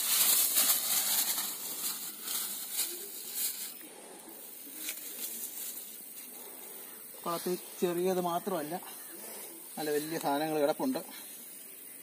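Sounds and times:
fish rustling and rattling in container: 0.0s - 3.8s.

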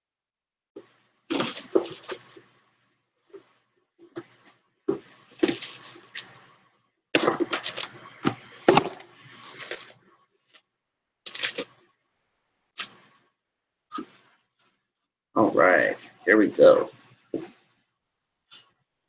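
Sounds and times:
plastic wrap crinkling: 1.3s - 2.4s, 5.3s - 6.5s, 7.2s - 10.6s, 11.3s - 11.8s.

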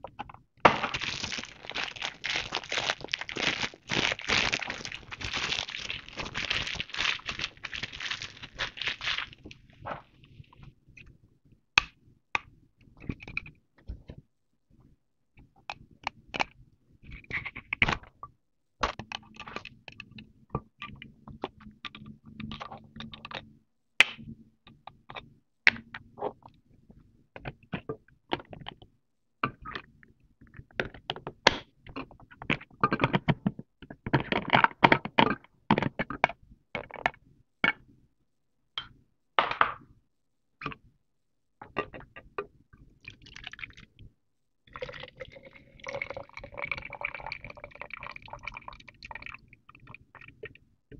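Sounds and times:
water pouring into plastic bottle: 0.7s - 9.6s, 43.0s - 44.0s, 44.7s - 50.3s.

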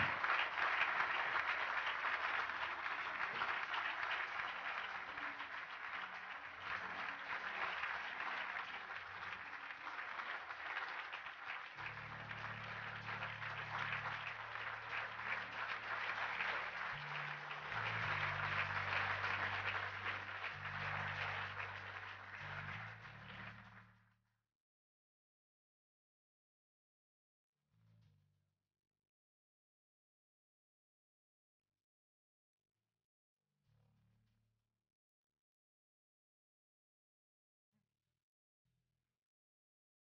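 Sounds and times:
audience applauding: 0.0s - 23.9s
music with low held notes: 11.8s - 24.0s.

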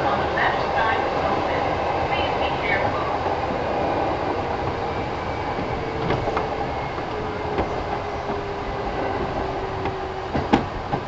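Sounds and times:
train wheels rumbling on rail: 0.0s - 11.0s.

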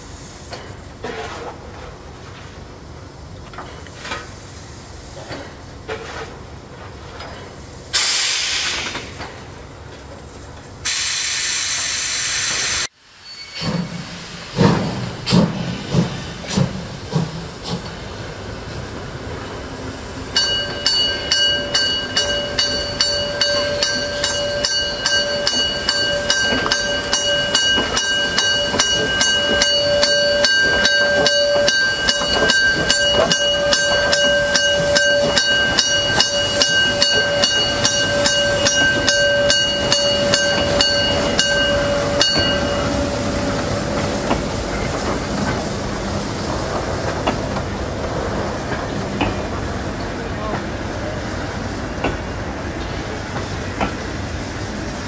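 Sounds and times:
steam hiss: 0.0s - 6.5s, 7.3s - 9.6s, 10.8s - 55.0s
steam locomotive exhaust beats: 13.6s - 55.0s
warning bell ringing rapidly: 20.4s - 43.2s.

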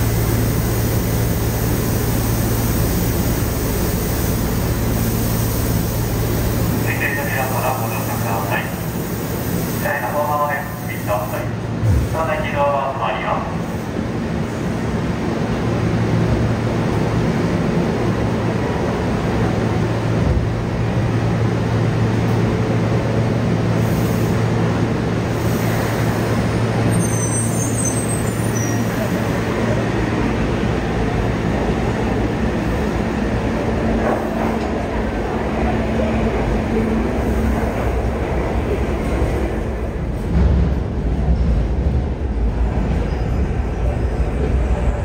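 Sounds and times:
electric train humming: 0.0s - 11.9s
train running noise in tunnel: 0.0s - 45.0s.

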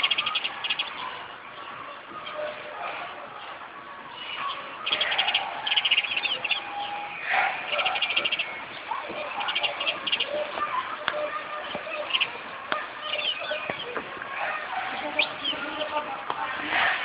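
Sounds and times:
sparrow chirping: 0.0s - 1.1s, 4.8s - 10.5s, 11.7s - 12.4s, 13.0s - 14.0s, 14.9s - 15.9s.

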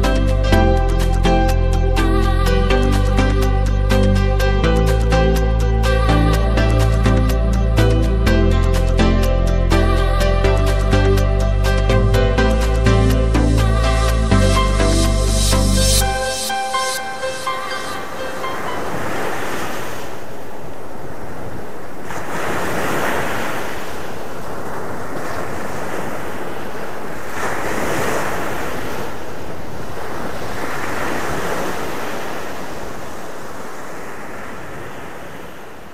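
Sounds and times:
waves breaking on a beach: 16.3s - 35.9s.

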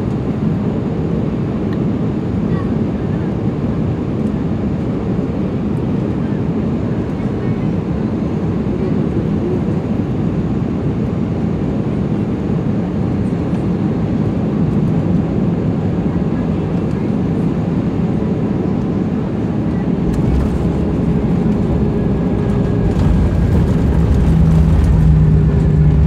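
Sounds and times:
jet engines rumbling: 0.0s - 26.0s
rushing air: 19.9s - 26.0s.

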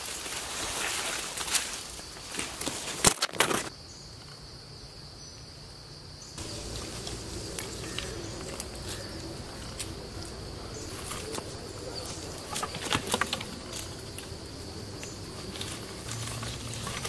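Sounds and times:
rustles: 0.0s - 4.5s, 6.4s - 17.0s
high-pitched insect drone: 6.2s - 17.0s.

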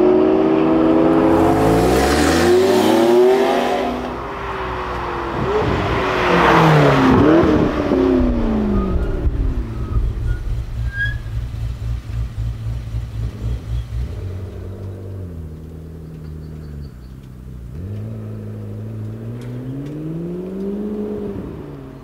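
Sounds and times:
sports car engine revving: 0.0s - 22.0s.

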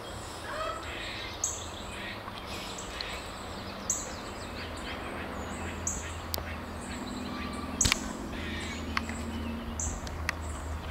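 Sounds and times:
birds chirping: 0.0s - 10.9s
sharp clicks: 7.8s - 8.1s.

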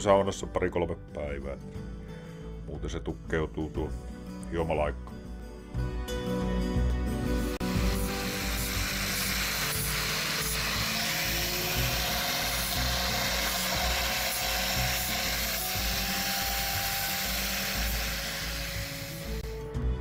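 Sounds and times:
background music: 0.0s - 20.0s
angle grinder sanding wood: 7.6s - 19.6s.

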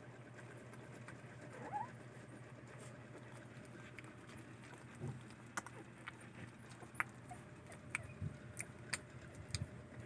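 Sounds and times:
puppies stirring with soft clicks: 0.0s - 10.0s
faint puppy squeak: 1.4s - 2.2s, 7.2s - 8.4s.

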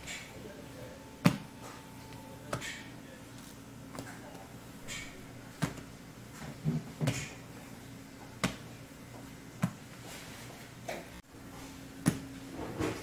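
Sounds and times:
faint steady hum: 0.0s - 13.0s
hands slapping bread dough: 4.9s - 5.9s, 8.3s - 8.7s, 9.6s - 9.9s, 12.0s - 12.3s.

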